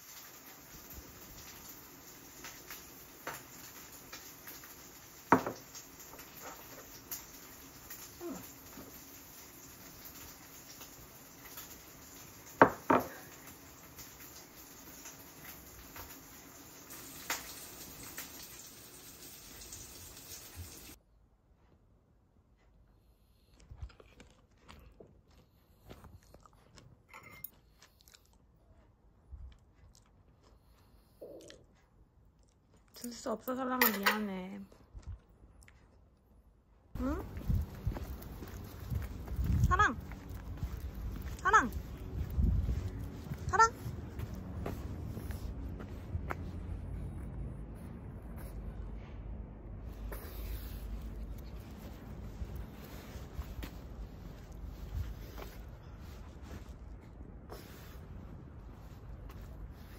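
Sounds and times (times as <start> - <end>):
chewing and crunching food: 22.8 - 49.1, 49.9 - 59.9.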